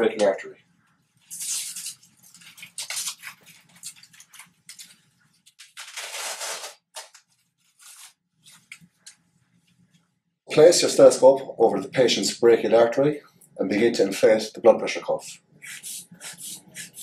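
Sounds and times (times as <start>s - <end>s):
velcro rasping: 1.3s - 9.1s.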